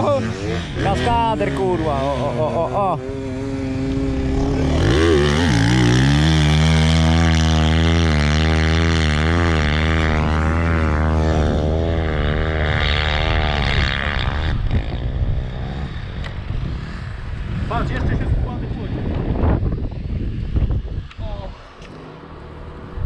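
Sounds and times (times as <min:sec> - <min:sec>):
off-road vehicle engine revving: 0:00.0 - 0:18.3.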